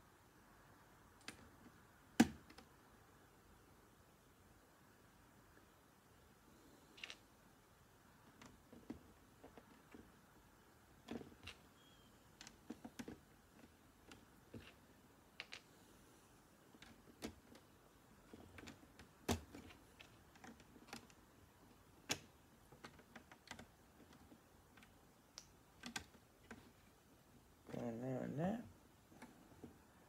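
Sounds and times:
plastic bricks clicking together: 15.4s - 15.7s.

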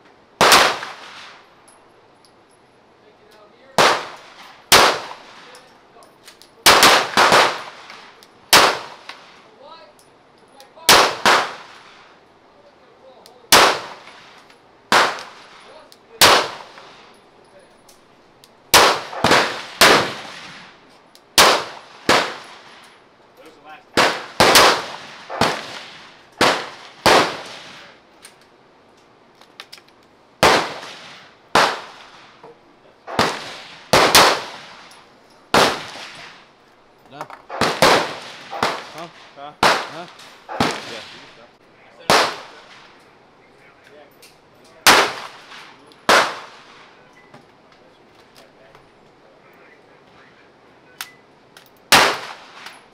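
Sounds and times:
gunshot echo: 0.4s - 1.4s, 6.7s - 9.2s, 10.9s - 11.8s, 14.9s - 17.0s, 18.7s - 20.7s, 24.0s - 27.9s, 30.4s - 32.2s, 33.1s - 34.8s, 35.5s - 36.4s, 37.5s - 41.4s, 42.0s - 42.9s, 44.8s - 46.9s, 51.9s - 52.8s
handgun firing single shots: 14.9s - 15.4s, 24.0s - 25.8s, 51.9s - 52.8s.

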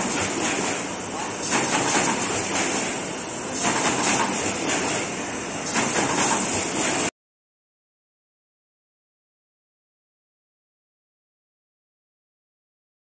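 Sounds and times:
machine running with high hiss: 0.0s - 7.1s.

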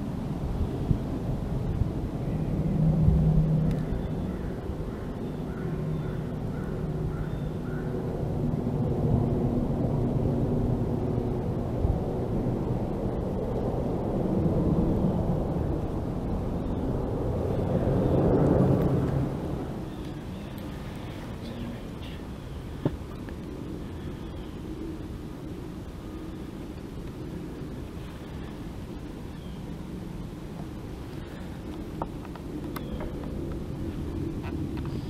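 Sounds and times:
distant traffic drone: 0.0s - 35.0s.

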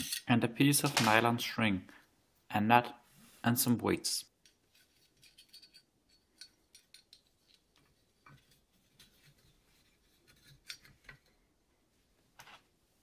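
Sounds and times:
metal tube clicking and scraping: 0.0s - 1.1s, 4.4s - 11.5s.

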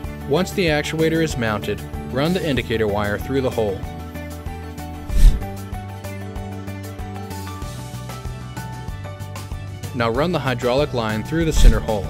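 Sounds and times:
instrumental music with a beat: 11.4s - 12.0s.

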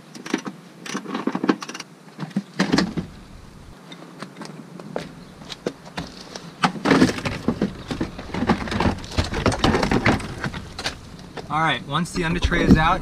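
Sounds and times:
panel clattering and scraping: 4.0s - 11.5s.

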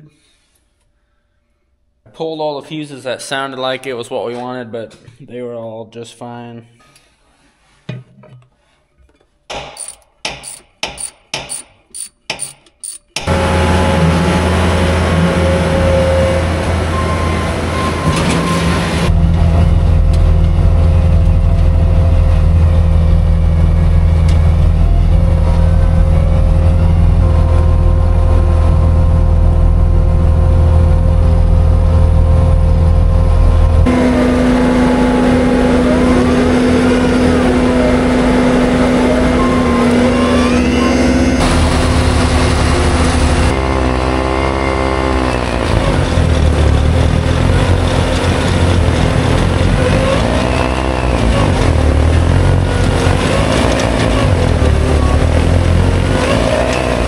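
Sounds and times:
skid steer engine running: 12.0s - 57.0s.

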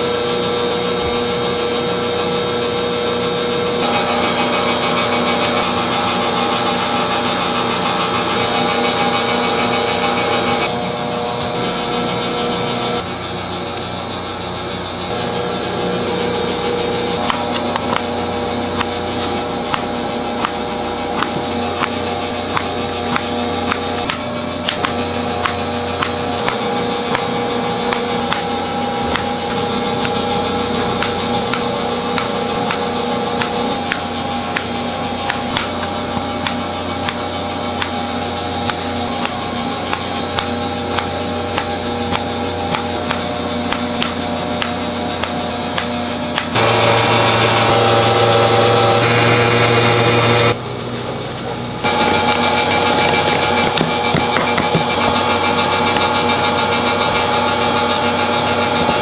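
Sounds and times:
constant machine hum: 0.0s - 59.0s
loud steady machine hum: 0.0s - 59.0s.

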